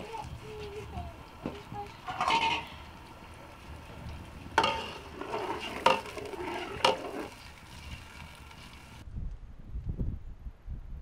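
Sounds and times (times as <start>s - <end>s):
food frying: 0.0s - 9.0s
metal spoon scraping a pot: 2.0s - 3.0s, 4.6s - 8.0s.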